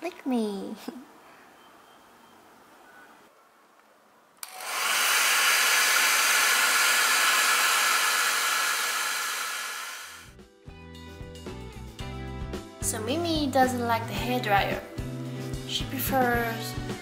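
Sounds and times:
hair dryer switch click: 4.4s - 4.9s
hair dryer running: 4.4s - 10.3s.

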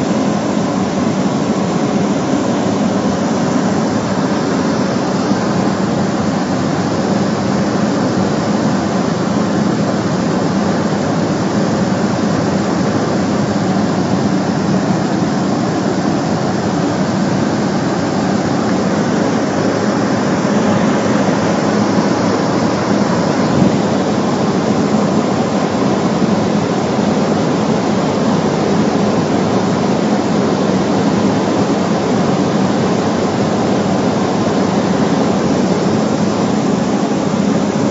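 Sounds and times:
propeller plane engine drone: 0.0s - 37.9s.

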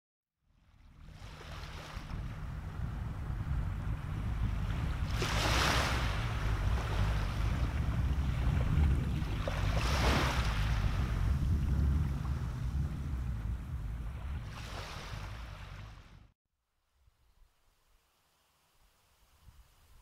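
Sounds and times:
wind rumble on microphone: 0.6s - 16.3s
waves washing onto beach: 1.0s - 16.2s.

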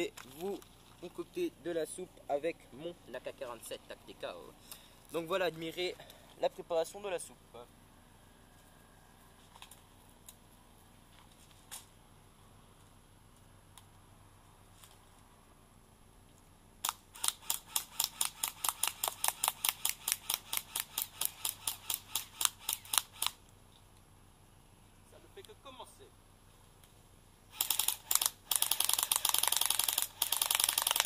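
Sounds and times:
airsoft gun rapid firing: 16.8s - 23.4s, 27.5s - 31.0s.

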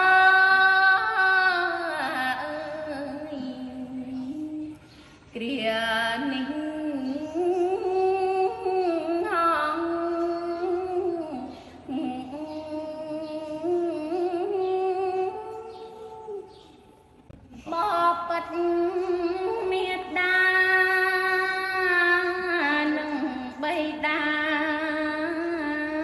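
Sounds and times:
woman chanting: 0.0s - 16.8s, 17.5s - 26.0s.

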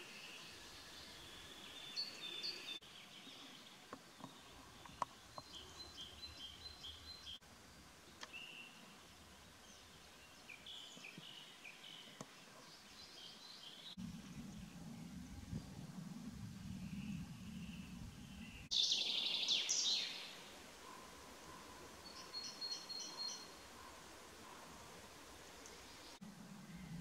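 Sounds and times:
songbirds chirping: 0.0s - 27.0s
low steady rumble: 14.0s - 18.7s, 26.2s - 27.0s.

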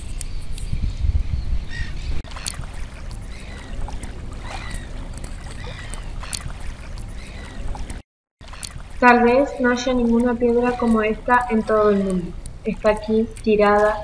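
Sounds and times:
wind rumbling on microphone: 0.0s - 8.0s.

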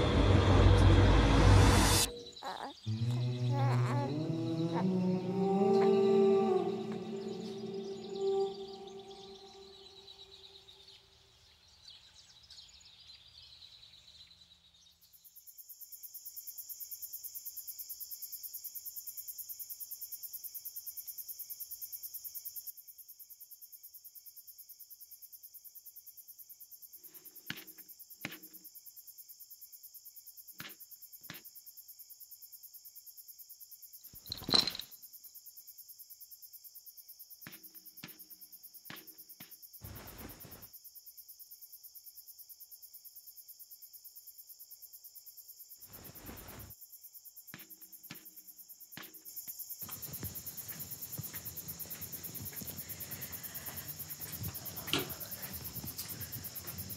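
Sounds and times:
crickets trilling: 2.0s - 10.4s, 25.8s - 56.9s.

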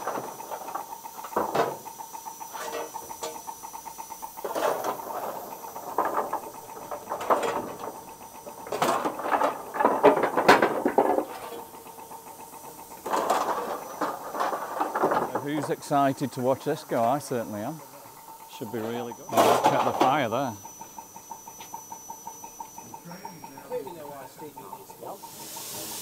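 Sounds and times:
coal clattering: 4.4s - 16.3s.

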